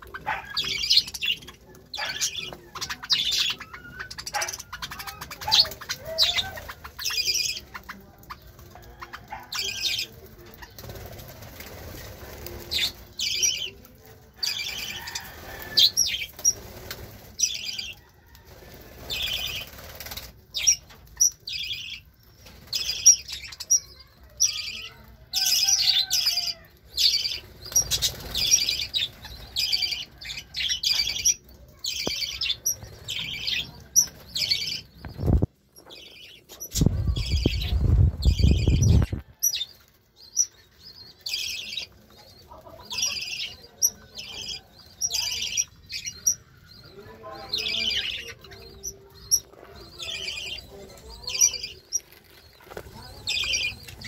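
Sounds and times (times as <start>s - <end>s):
budgerigars chirping: 0.0s - 8.0s
wings fluttering: 0.0s - 21.3s, 27.0s - 31.2s, 32.0s - 40.0s, 48.0s - 54.0s.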